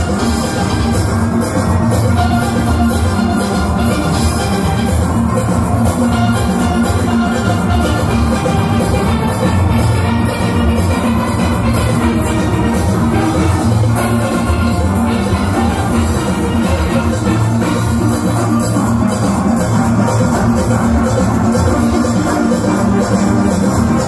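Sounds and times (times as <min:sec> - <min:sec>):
drum kit and percussion beat: 0:00.0 - 0:24.0.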